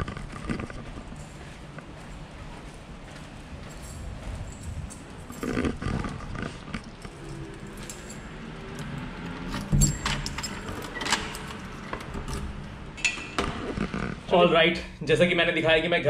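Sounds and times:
keys jangling: 0:01.1 - 0:13.2.

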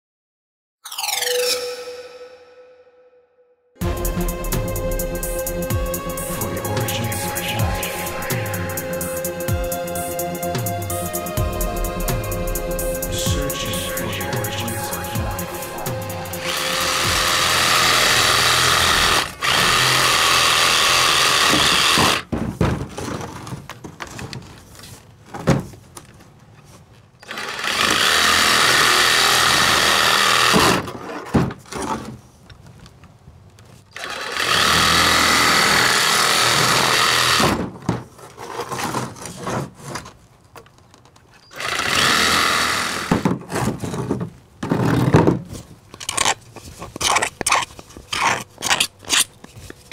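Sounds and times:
power saw cutting plastic pipe: 0:12.9 - 0:22.3, 0:27.2 - 0:32.1, 0:33.9 - 0:37.7, 0:41.5 - 0:44.1, 0:46.0 - 0:49.9.

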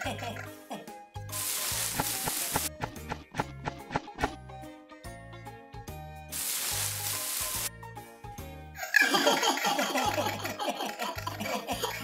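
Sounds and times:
children's music with bass line: 0:00.0 - 0:12.0
hissing burst of noise: 0:01.3 - 0:02.7, 0:06.3 - 0:07.7
cartoon baby laughter: 0:08.8 - 0:12.0.

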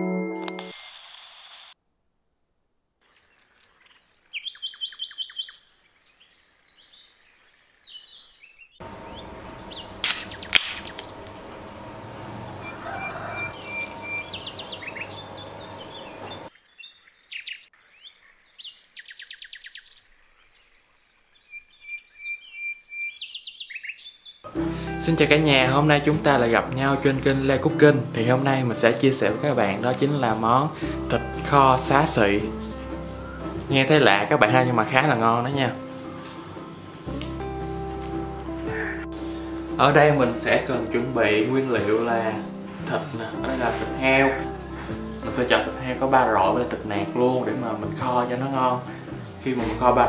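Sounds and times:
small birds chirping: 0:02.5 - 0:24.5, 0:30.0 - 0:39.8, 0:42.1 - 0:50.0
low hum: 0:08.8 - 0:16.5
sharp clicks: 0:09.6 - 0:11.3.

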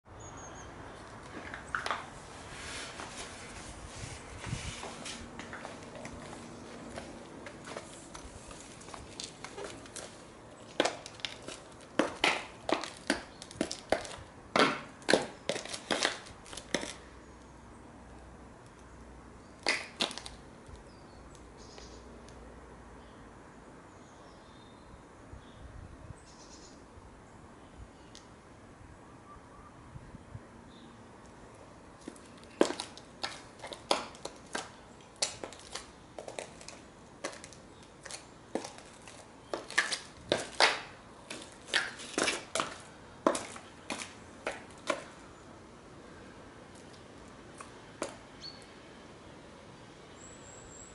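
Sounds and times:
grit and leaves crunching underfoot: 0:01.0 - 0:17.0, 0:32.0 - 0:45.2
high heels clicking on concrete: 0:01.1 - 0:02.2, 0:04.4 - 0:17.0, 0:19.6 - 0:20.4, 0:32.0 - 0:45.2, 0:47.6 - 0:48.2.

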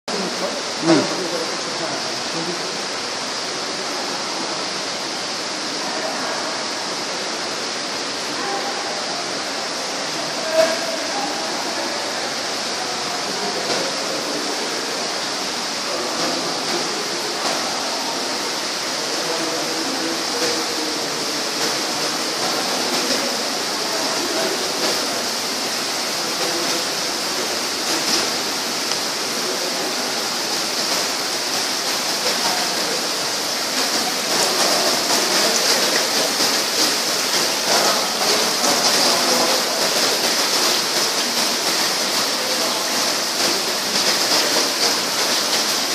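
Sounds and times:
water splashing onto pots: 0:09.2 - 0:45.9.

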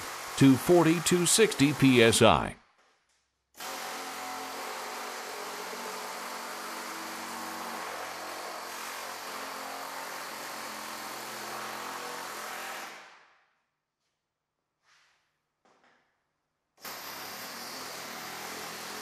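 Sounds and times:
pneumatic air hammer: 0:16.8 - 0:19.0.

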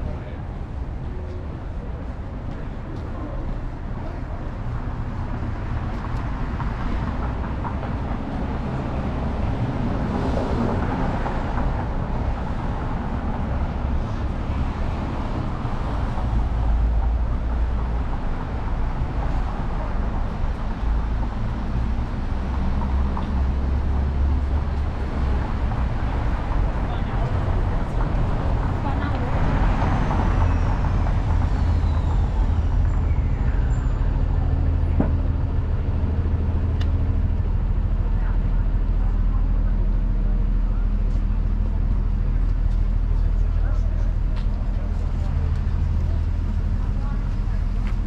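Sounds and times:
traffic rumble: 0:00.0 - 0:48.0.

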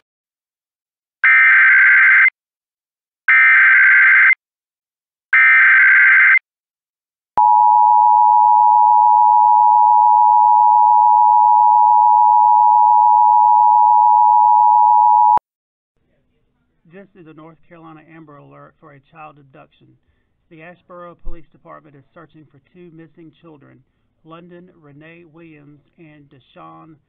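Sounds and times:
two-tone alarm: 0:07.4 - 0:15.4.

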